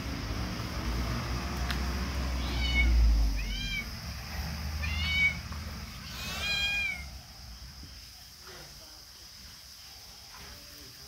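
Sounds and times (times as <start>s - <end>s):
kitten meowing: 2.4s - 4.0s, 4.8s - 7.1s.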